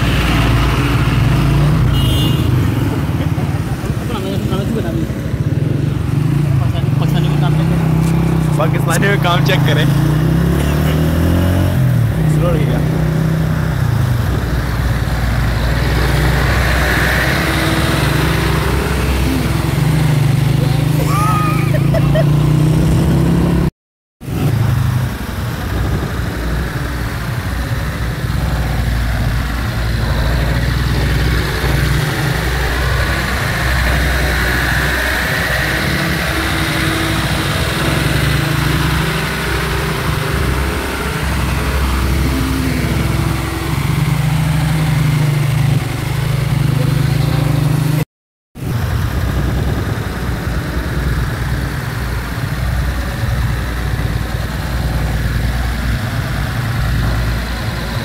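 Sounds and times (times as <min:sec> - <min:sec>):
truck engine droning: 0:00.0 - 0:23.7, 0:24.3 - 0:47.8, 0:48.6 - 0:58.0
road noise: 0:00.0 - 0:58.0.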